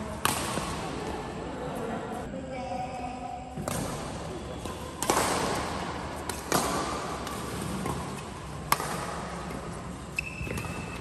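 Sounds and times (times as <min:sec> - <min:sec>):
badminton racket hitting shuttlecock: 0:00.1 - 0:01.1, 0:03.6 - 0:11.0.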